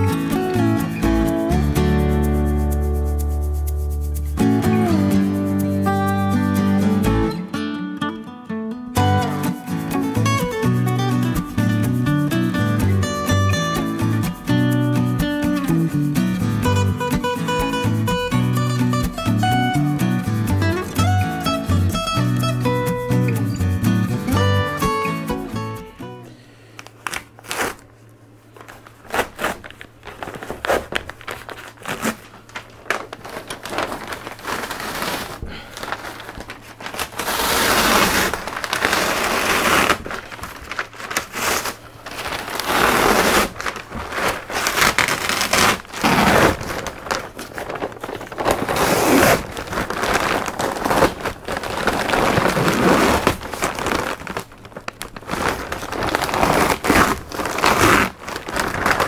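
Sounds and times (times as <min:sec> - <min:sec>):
fabric tearing and crinkling: 0:26.8 - 0:59.0.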